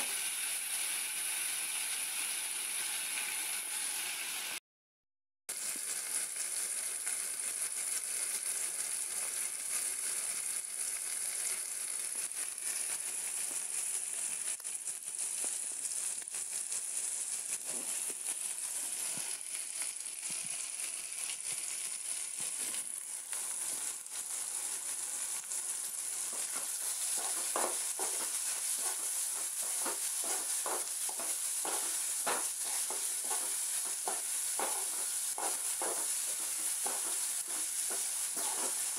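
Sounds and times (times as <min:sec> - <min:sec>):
vegetables sizzling in a pan: 0:00.0 - 0:04.6, 0:05.5 - 0:38.9
spoon scraping and stirring pan: 0:17.5 - 0:38.9.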